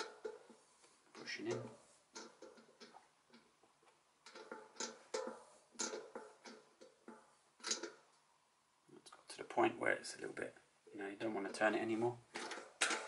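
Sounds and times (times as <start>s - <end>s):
bearing press clicking and creaking: 0.0s - 3.6s, 4.2s - 8.2s.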